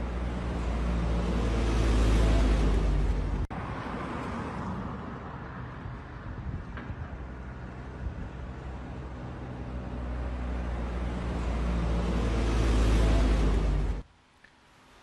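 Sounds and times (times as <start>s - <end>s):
car passing close: 0.0s - 5.7s, 8.6s - 14.0s
traffic noise: 0.0s - 15.0s.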